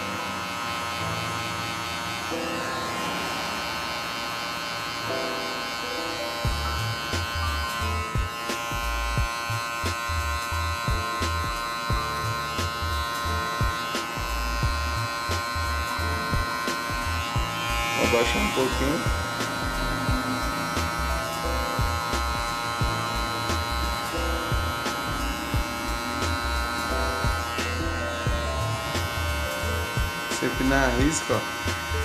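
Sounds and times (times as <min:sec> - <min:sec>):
hair clipper buzzing: 0:00.0 - 0:32.0
background music with bass beat: 0:06.4 - 0:32.0.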